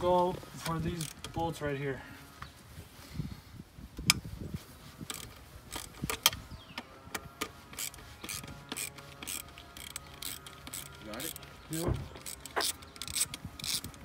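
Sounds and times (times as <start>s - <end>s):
ratchet wrench clicking: 0.6s - 1.4s, 5.0s - 6.4s, 7.1s - 14.0s.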